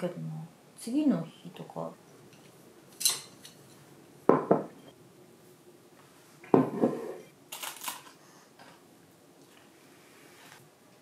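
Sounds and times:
glass mug set down: 4.3s - 4.7s, 6.5s - 7.2s
tableware knocking on wooden table: 4.3s - 4.8s, 6.5s - 7.2s.

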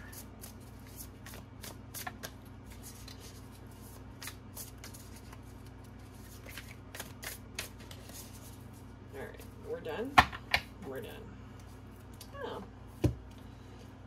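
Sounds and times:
cards being shuffled: 0.0s - 8.6s
steady low hum: 0.0s - 14.0s.

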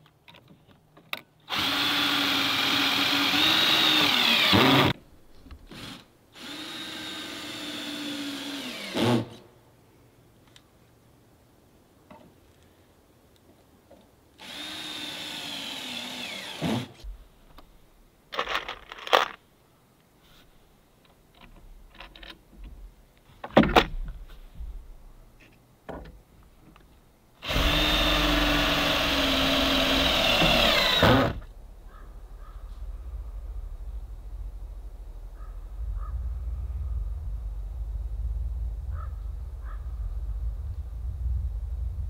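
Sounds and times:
power drill driving screws: 1.5s - 5.0s, 5.7s - 9.4s, 14.4s - 17.0s, 27.4s - 31.5s.

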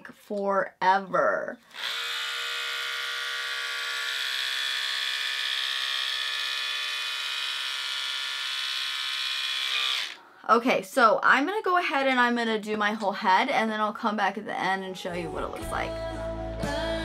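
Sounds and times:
electric trimmer motor whine: 1.7s - 10.2s.

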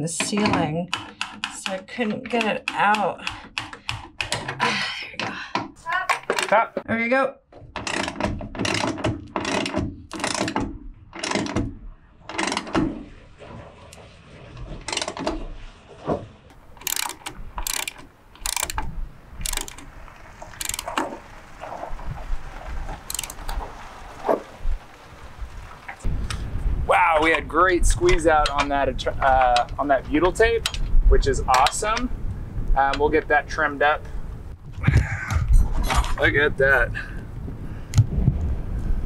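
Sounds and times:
ratchet wrench clicking: 16.8s - 19.8s, 20.6s - 20.9s, 23.1s - 23.4s.

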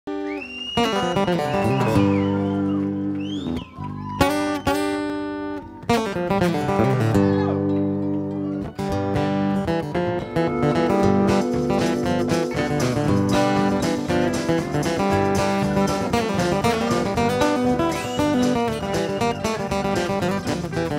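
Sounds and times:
acoustic guitar strumming: 0.1s - 3.6s, 4.2s - 20.9s
harmonica lead line: 0.1s - 7.7s, 8.6s - 20.9s
live band music: 4.3s - 20.9s.

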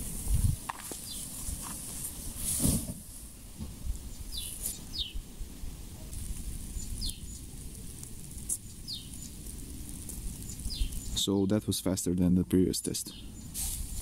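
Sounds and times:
steady high hiss: 0.0s - 14.0s
bird chirping: 1.0s - 1.3s, 4.1s - 5.2s, 6.7s - 7.5s, 8.6s - 9.4s, 10.4s - 11.8s, 12.7s - 13.6s.

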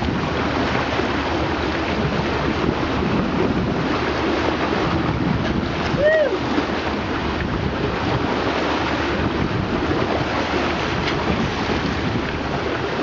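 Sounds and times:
water splashing along hull: 0.0s - 13.0s
wind buffeting microphone: 0.0s - 13.0s.

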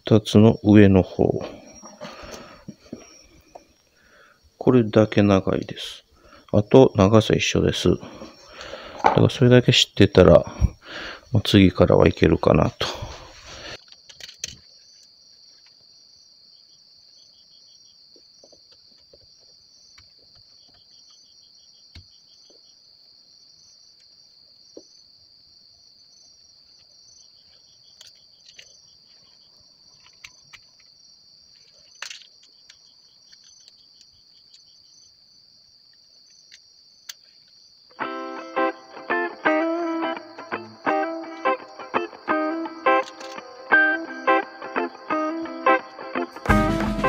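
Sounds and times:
insects trilling and chirping: 0.0s - 46.4s
guitar music: 38.0s - 47.0s.

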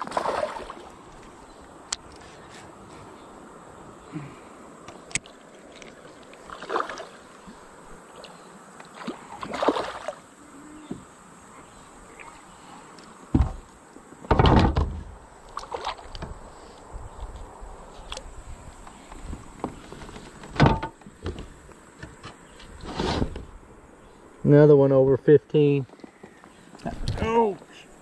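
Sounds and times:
water splashing and sloshing: 0.0s - 2.7s, 4.9s - 11.1s, 12.1s - 16.8s
knock on kayak hull: 13.3s - 13.6s.

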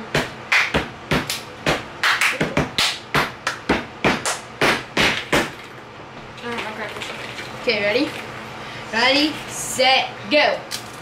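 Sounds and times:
hands clapping: 0.2s - 4.4s.

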